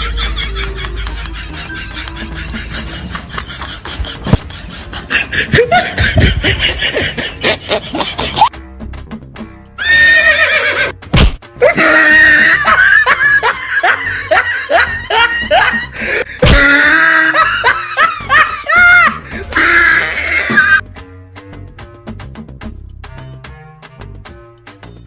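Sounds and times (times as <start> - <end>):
canned laughter: 0.0 - 8.5, 11.6 - 20.8
comedy music: 0.0 - 21.6.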